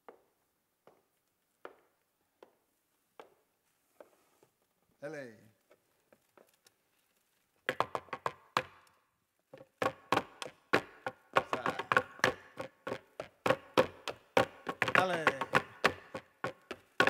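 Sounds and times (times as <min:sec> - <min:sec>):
hands knocking on wooden table: 0:09.6 - 0:17.0.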